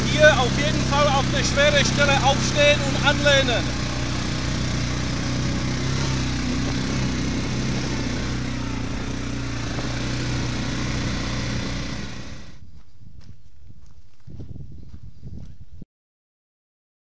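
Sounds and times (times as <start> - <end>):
atv engine running: 0.0 - 14.2.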